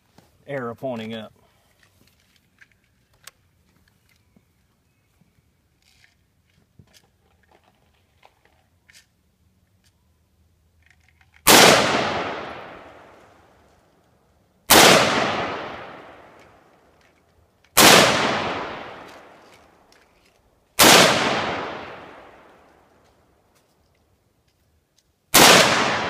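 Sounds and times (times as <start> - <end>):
rifle shots: 11.5 - 13.2, 14.7 - 16.4, 17.8 - 19.5, 20.8 - 22.5, 25.3 - 26.0.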